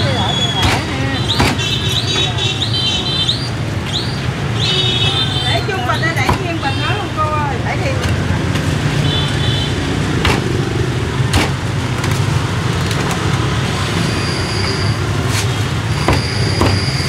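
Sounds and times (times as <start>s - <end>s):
street traffic rumble: 0.0s - 17.0s.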